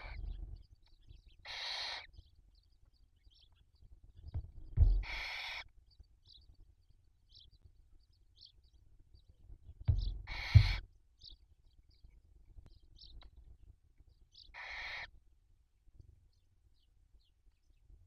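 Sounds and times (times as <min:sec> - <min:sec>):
owls rasping hissing calls: 0:01.4 - 0:02.1, 0:05.0 - 0:05.7, 0:10.2 - 0:10.8, 0:14.5 - 0:15.1
low thumps: 0:04.3 - 0:05.2, 0:09.8 - 0:10.8.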